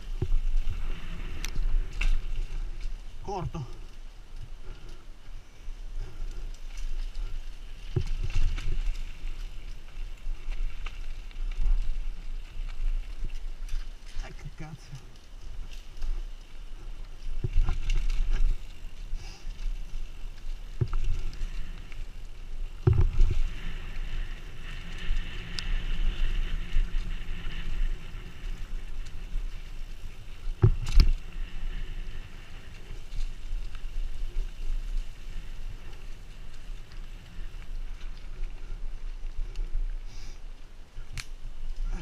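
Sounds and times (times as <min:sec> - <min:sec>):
bike tyres rumbling and rattling: 0:00.0 - 0:42.0.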